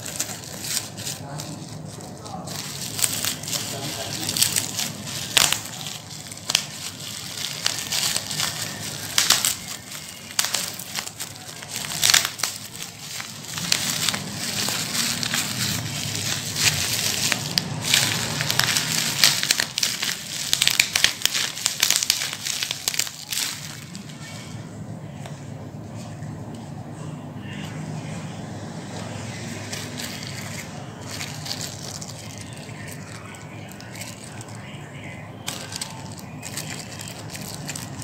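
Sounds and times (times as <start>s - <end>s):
sharp crackles: 0.0s - 24.0s
plastic packaging crinkling: 0.0s - 24.3s, 29.5s - 38.0s.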